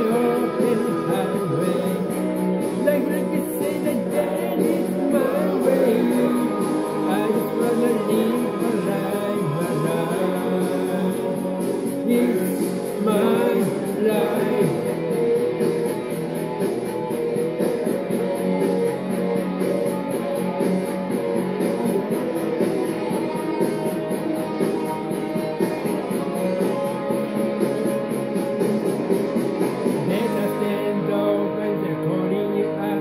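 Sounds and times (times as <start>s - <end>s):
man singing: 0.0s - 15.3s, 30.0s - 33.0s
rock music with electric guitar: 0.0s - 33.0s.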